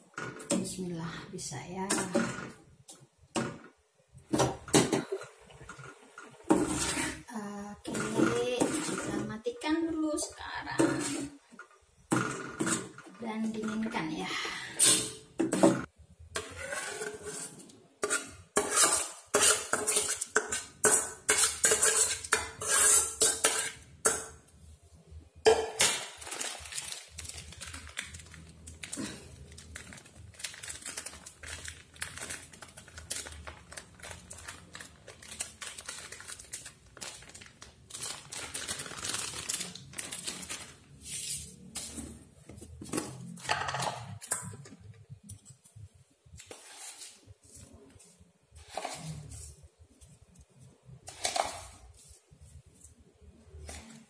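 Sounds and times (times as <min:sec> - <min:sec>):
metal spoon scraping steel bowl: 0:06.6 - 0:07.3, 0:10.8 - 0:11.4, 0:16.3 - 0:24.2.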